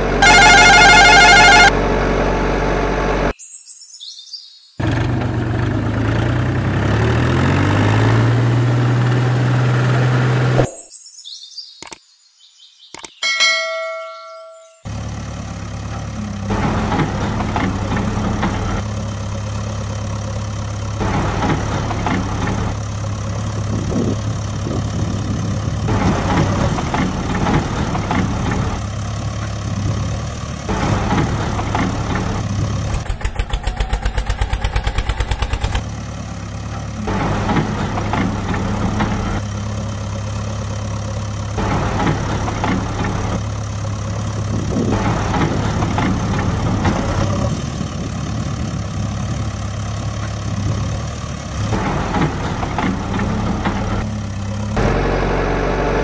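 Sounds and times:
vehicle engine idling: 0.0s - 3.3s, 26.6s - 51.5s.

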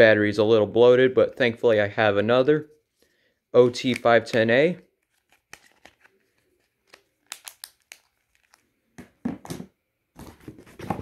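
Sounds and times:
crinkling: 3.8s - 9.2s.

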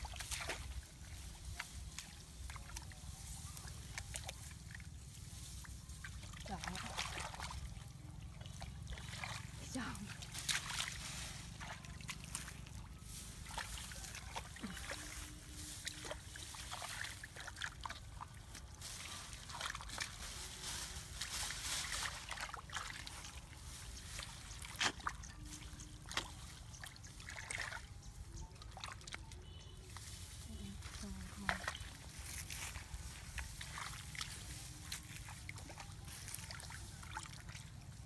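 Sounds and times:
hands squelching in wet mud: 0.0s - 38.0s
water splashing and trickling: 0.0s - 38.0s
sharp slaps in mud: 24.7s - 25.2s.

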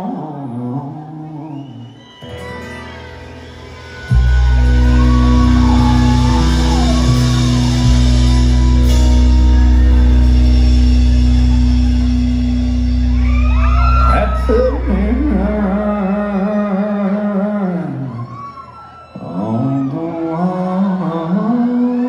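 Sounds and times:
country-rock band playing live: 2.0s - 17.6s
sustained guitar chord: 4.1s - 15.9s.

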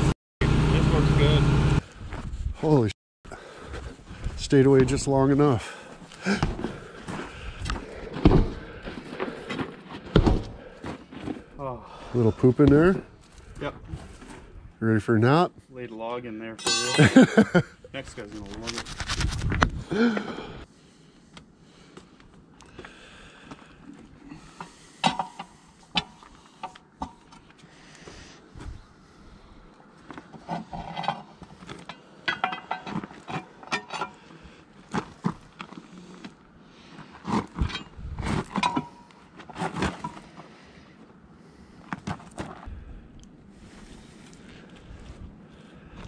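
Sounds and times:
sharp metal clinks: 16.6s - 17.2s
tire iron clanking on wheel rim: 25.0s - 26.2s, 30.4s - 34.2s.

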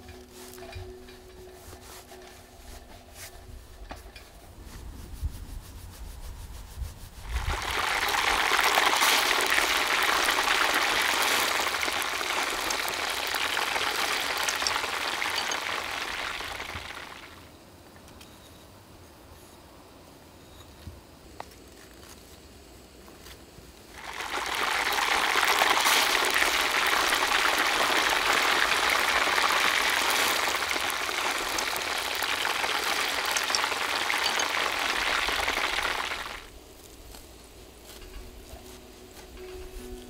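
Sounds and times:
dough sizzling in hot oil: 7.2s - 17.5s, 23.9s - 36.5s.

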